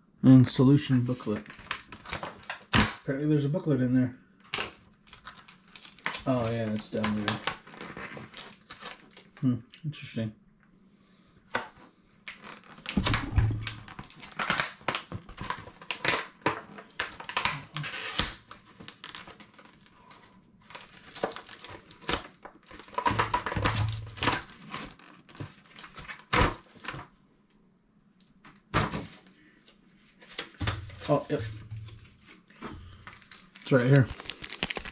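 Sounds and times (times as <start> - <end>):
cardboard and paper rustling: 4.6 - 9.4, 11.6 - 27.0, 30.0 - 34.9.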